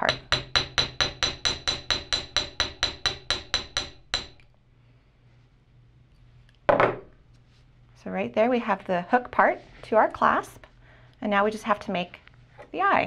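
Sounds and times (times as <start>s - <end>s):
small hammer tapping on metal: 0.0s - 4.5s.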